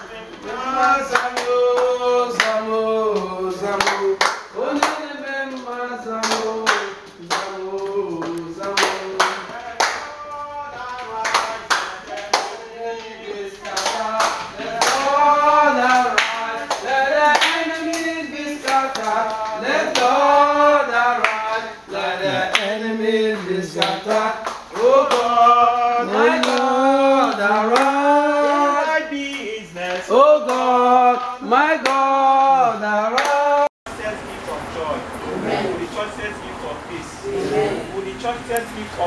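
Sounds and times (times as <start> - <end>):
people singing a church song: 0.0 - 33.7
hand clapping in time: 1.1 - 15.2, 15.8 - 20.1, 27.3 - 28.6.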